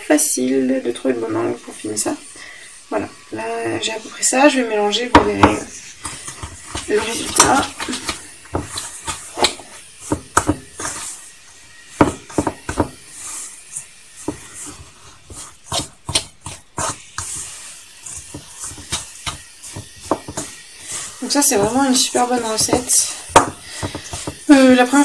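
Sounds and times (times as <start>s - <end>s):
spoon stirring thick batter: 0.4s - 25.0s
spoon knocking bowl: 12.0s - 13.0s, 18.2s - 20.6s, 21.5s - 24.5s.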